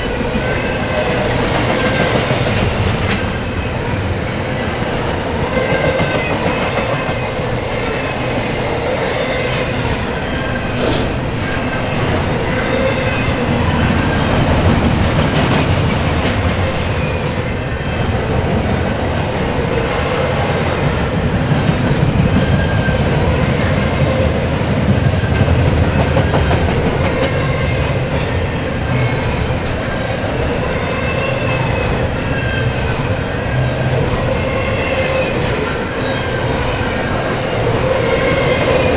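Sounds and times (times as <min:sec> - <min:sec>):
train wheels rumbling on rail: 0:00.0 - 0:38.9.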